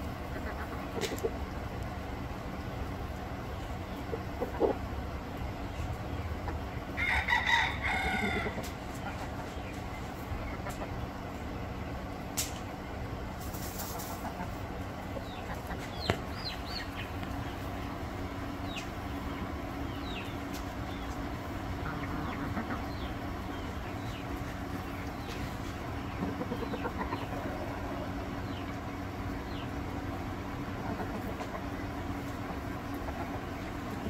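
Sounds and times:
chickens chirping and clucking: 0.0 - 34.0
low background rumble: 0.0 - 34.0
rooster crowing: 7.0 - 8.6
scratchy rustle of dry dirt: 13.4 - 14.2.

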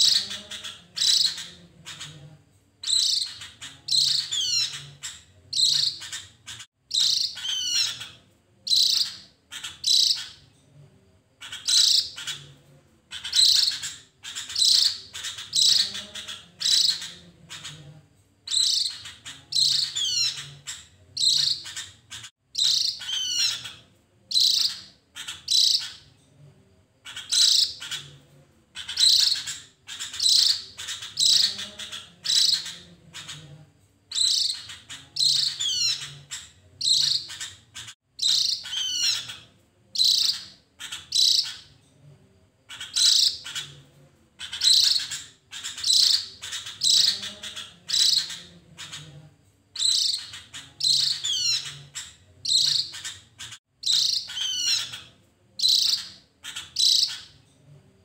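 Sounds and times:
bird chirping and whistling: 2.8 - 4.9, 5.6 - 10.4, 18.5 - 26.0, 34.1 - 39.4, 40.0 - 41.6, 44.4 - 49.0, 49.8 - 55.0, 55.6 - 57.3.

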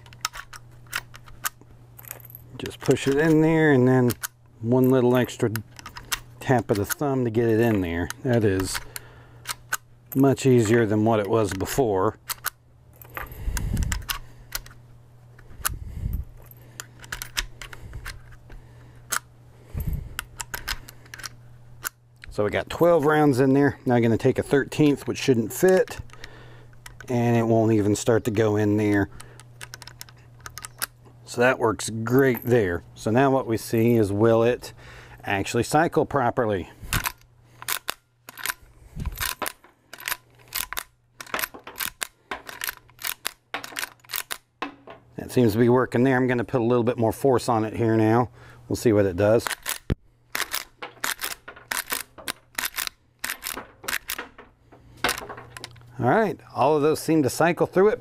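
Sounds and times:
dull thumps handling rifle: 36.9 - 45.1, 49.5 - 55.9
cartridges clicking into rifle: 49.4 - 55.9.

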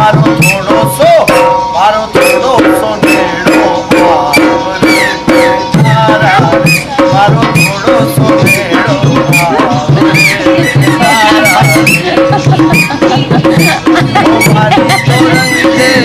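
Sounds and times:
hand drums beating: 0.0 - 16.0
sliding melody: 0.0 - 16.0
dance music: 7.7 - 16.0.

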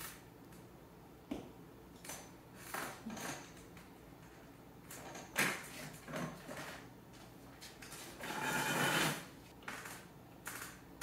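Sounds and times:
long sliding scrape: 8.2 - 9.3.

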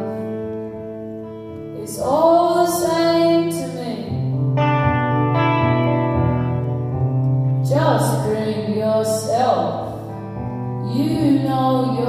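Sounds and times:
slow electric guitar: 0.0 - 12.0
woman singing: 1.8 - 4.2, 7.6 - 9.9, 10.8 - 12.0.

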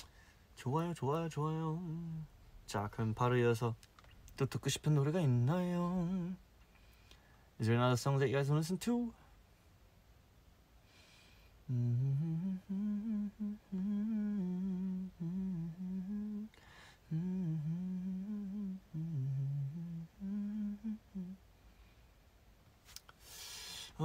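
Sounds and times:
man humming: 11.7 - 21.4.

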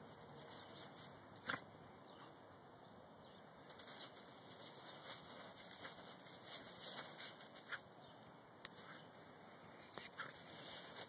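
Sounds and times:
snow crunching under dog: 10.3 - 11.0.

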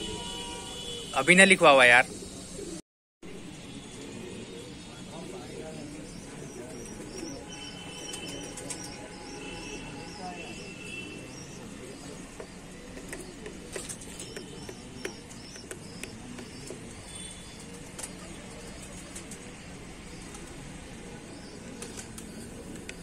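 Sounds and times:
birds chirping: 0.0 - 23.0
sharp clicks: 13.0 - 16.7.

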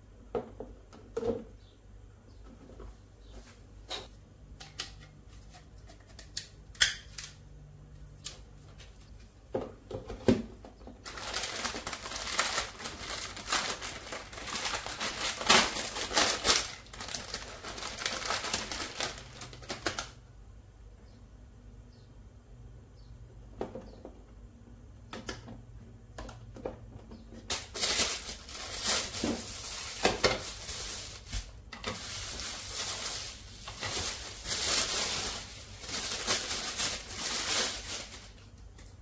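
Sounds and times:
plastic packaging crinkling: 11.0 - 20.2, 27.5 - 38.6.

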